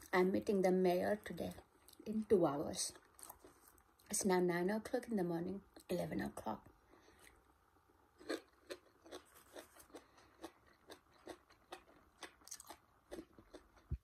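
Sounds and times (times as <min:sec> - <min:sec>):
person chewing food: 0:02.9 - 0:04.1, 0:08.2 - 0:14.0
soft crunches and mouth clicks: 0:08.2 - 0:14.0.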